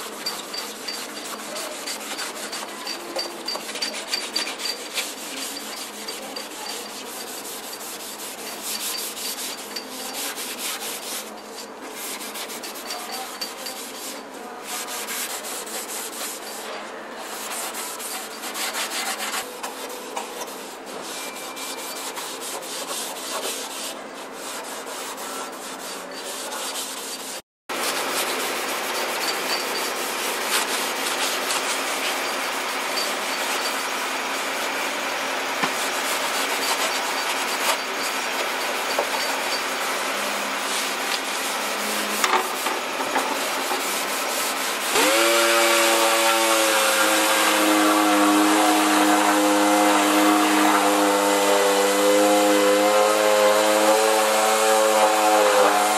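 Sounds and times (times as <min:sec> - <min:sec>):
hand sanding metal with abrasive pad: 0:00.0 - 0:55.9
orbital sander whine: 0:44.9 - 0:55.9.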